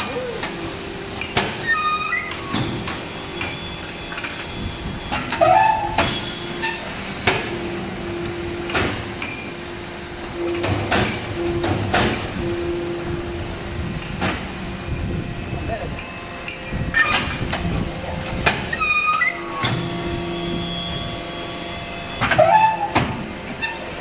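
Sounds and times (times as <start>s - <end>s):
machine hum: 0.0s - 24.0s
loud metal clanks: 2.3s - 7.6s.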